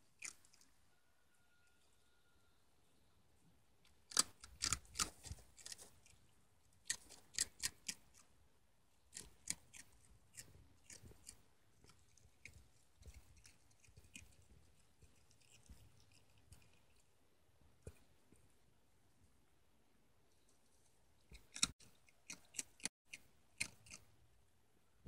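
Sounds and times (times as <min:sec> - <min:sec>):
fox chewing with crunching bites: 0:00.0 - 0:00.8, 0:03.8 - 0:08.4, 0:09.0 - 0:17.2, 0:21.2 - 0:24.1.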